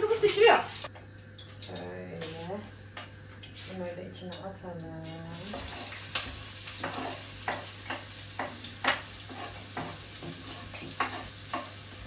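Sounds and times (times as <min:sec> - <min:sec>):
onion and garlic sizzling in oil: 0:00.0 - 0:04.0, 0:04.9 - 0:12.0
knife scraping cutting board: 0:08.8 - 0:11.7.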